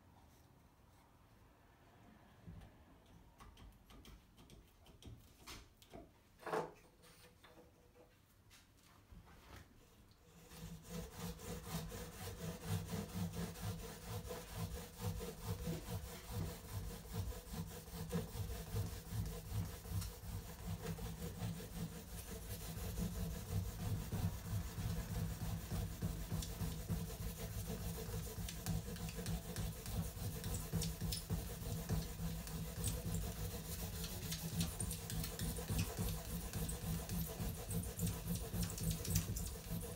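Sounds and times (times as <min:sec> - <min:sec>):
hand saw cutting wood: 0:10.3 - 0:39.9.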